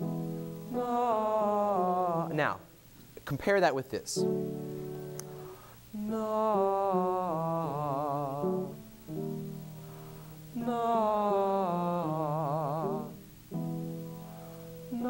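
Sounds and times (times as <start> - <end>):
piano notes: 0.0 - 2.6, 4.2 - 5.5, 6.1 - 15.0
man singing sustained note: 0.0 - 2.7, 5.9 - 13.6, 14.2 - 15.0.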